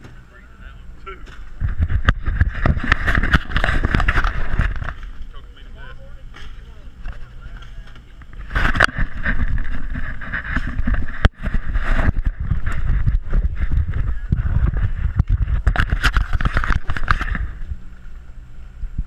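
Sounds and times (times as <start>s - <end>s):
wind buffeting microphone: 1.4s - 5.4s, 8.1s - 18.0s.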